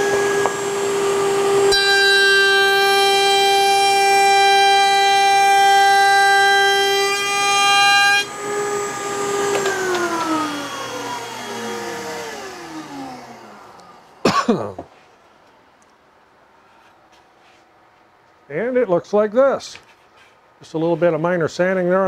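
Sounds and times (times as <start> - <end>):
router high whine: 0.0 - 14.2.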